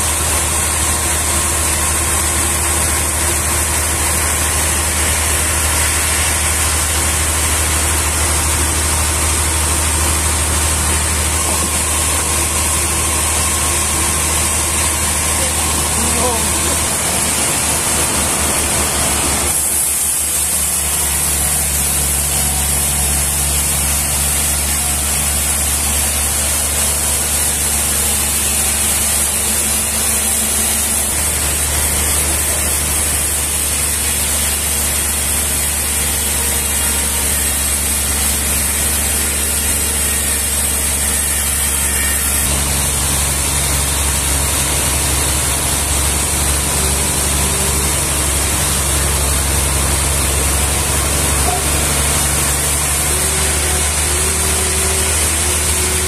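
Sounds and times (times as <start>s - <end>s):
band saw cutting log: 0.0s - 56.0s
motor hum: 0.0s - 56.0s.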